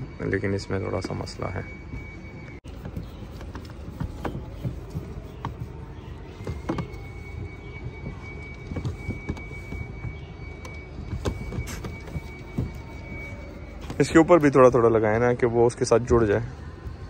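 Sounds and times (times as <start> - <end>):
faint high tone: 5.2 - 15.8.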